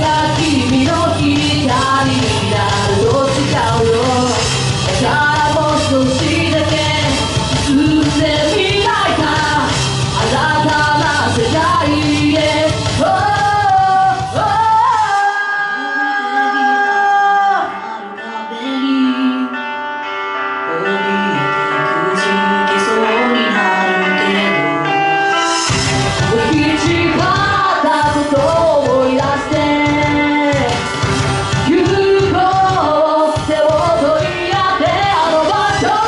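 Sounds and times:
woman singing into microphone: 0:00.0 - 0:19.9, 0:20.7 - 0:25.1, 0:26.2 - 0:36.0
backing music: 0:00.0 - 0:36.0.

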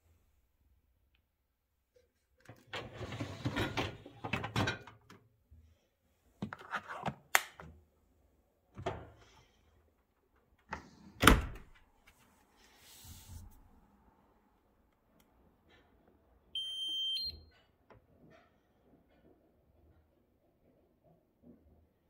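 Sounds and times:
dishwasher racks sliding: 0:02.7 - 0:04.8
dishwasher door shutting: 0:11.2 - 0:11.7.

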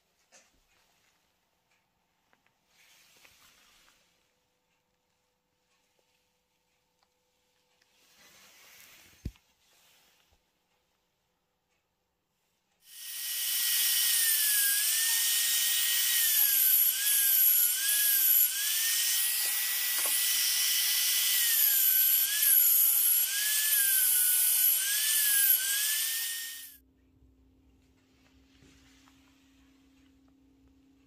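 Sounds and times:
router high whine milling metal: 0:12.9 - 0:26.8.

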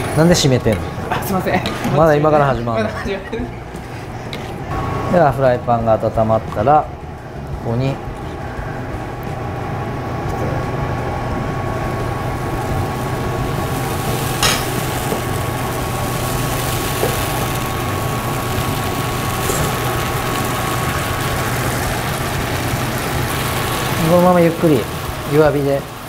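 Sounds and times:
batter sizzling in frying pan: 0:11.8 - 0:26.0.

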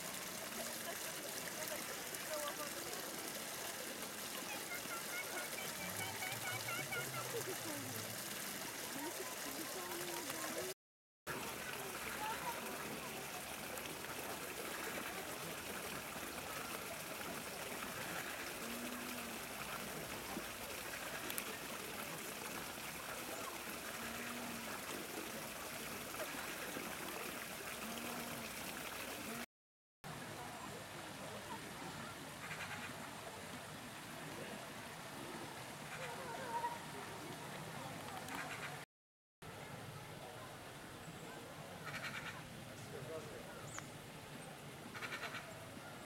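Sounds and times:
running water hiss: 0:00.0 - 0:29.5.

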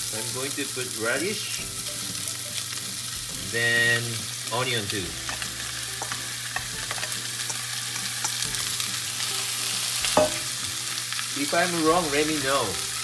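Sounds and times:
meat sizzling in oil: 0:00.0 - 0:13.0.

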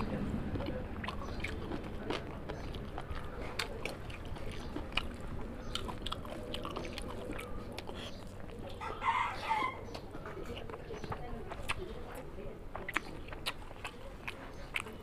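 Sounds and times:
person chewing food: 0:00.0 - 0:15.0
wet mouth clicks and smacks: 0:12.7 - 0:15.0.

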